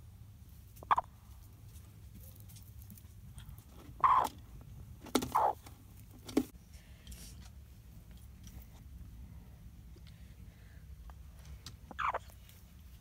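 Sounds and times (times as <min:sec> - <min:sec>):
hen clucking: 0:00.8 - 0:01.2, 0:03.9 - 0:04.5, 0:05.1 - 0:05.7, 0:11.8 - 0:12.4.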